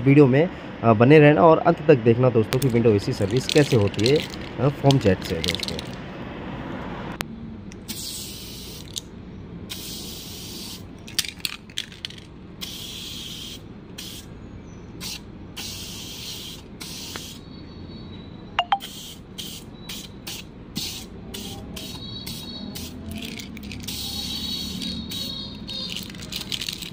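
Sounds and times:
aerosol can spraying bursts: 7.8s - 9.0s, 9.7s - 10.8s, 12.6s - 14.3s, 15.0s - 17.4s, 18.8s - 26.9s.

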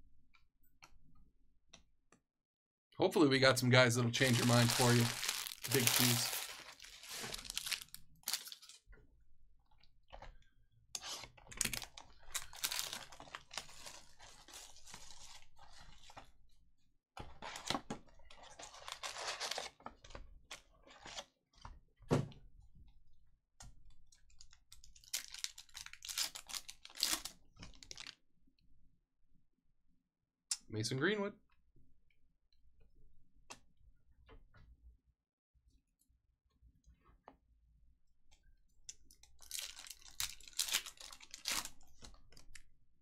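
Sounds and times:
wrapper crinkling and tearing: 4.2s - 8.8s, 11.6s - 16.1s, 18.5s - 19.7s, 25.0s - 28.2s, 39.4s - 41.8s.

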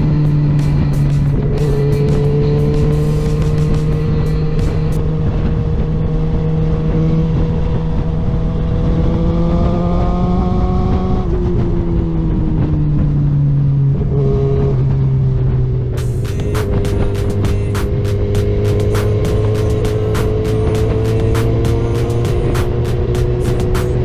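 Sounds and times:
motorcycle engine running: 0.0s - 24.0s
wind and road noise: 0.0s - 24.0s.

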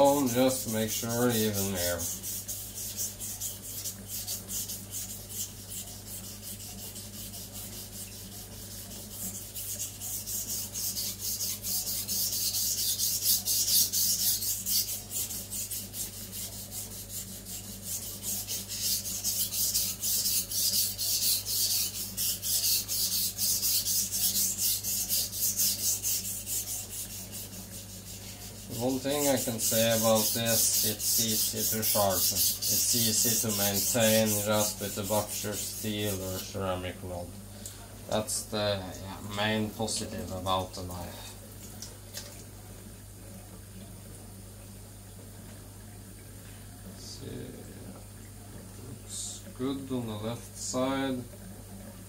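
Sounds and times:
knife scraping on whetstone: 0.0s - 36.5s.

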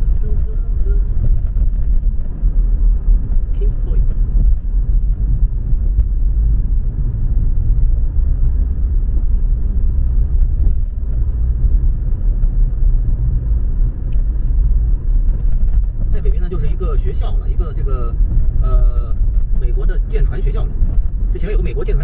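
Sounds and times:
car road and engine rumble: 0.0s - 22.0s.

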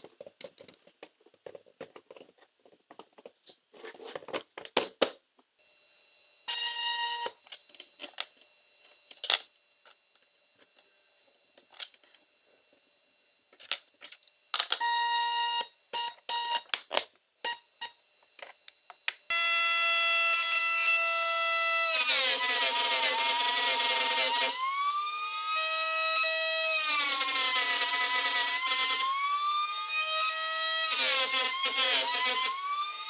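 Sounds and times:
router running whine: 19.3s - 33.0s
stepper motor whining: 19.3s - 33.0s.

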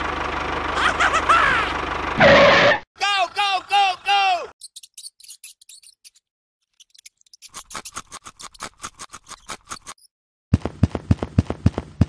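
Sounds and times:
dry clicking and scratching: 6.9s - 10.1s
heavier taps with low thud: 10.6s - 12.0s.

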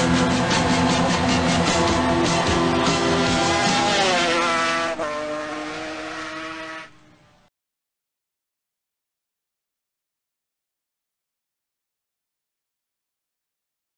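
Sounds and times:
music: 0.0s - 4.5s
motorcycle passing at speed: 0.0s - 7.4s.

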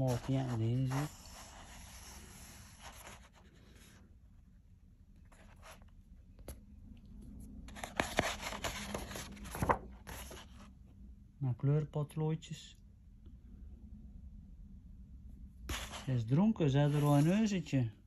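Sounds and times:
page turning: 0.0s - 3.4s, 7.7s - 10.7s, 15.7s - 16.1s
paper rustling: 0.0s - 3.9s, 7.7s - 10.7s, 15.7s - 16.1s
hand sliding over paper: 0.0s - 4.1s, 7.7s - 10.7s, 15.7s - 17.6s
paper crackling: 7.7s - 10.6s.

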